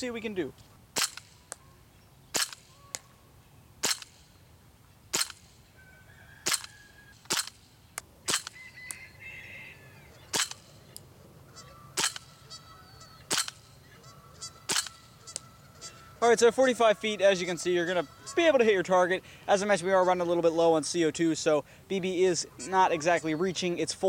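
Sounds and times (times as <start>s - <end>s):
birds calling: 0.0s - 24.0s
airsoft pistol shots: 1.0s - 1.5s, 2.3s - 2.8s, 3.8s - 4.3s, 5.1s - 5.5s, 6.4s - 6.7s, 7.3s - 7.6s, 8.3s - 8.6s, 10.3s - 10.7s, 12.0s - 12.4s, 13.3s - 13.6s, 14.7s - 15.0s.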